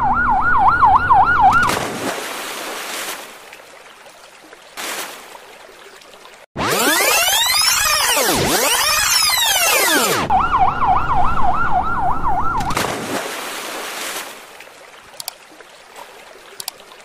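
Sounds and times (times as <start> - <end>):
siren wailing: 0.0 - 1.7, 6.6 - 12.8
faint water sounds: 0.1 - 12.0, 12.6 - 17.0.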